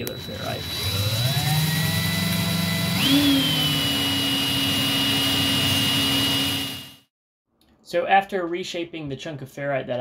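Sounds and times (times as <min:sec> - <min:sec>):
cordless drill motor whining: 0:00.0 - 0:07.1.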